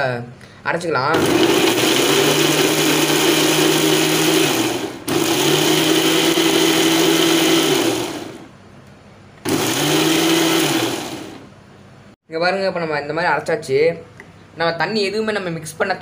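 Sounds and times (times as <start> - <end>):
mixer grinder motor humming: 1.1 - 8.6, 9.4 - 11.6.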